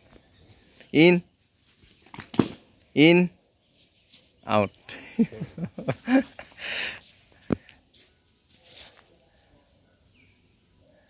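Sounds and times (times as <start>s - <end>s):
sharp slap: 2.1s - 2.6s.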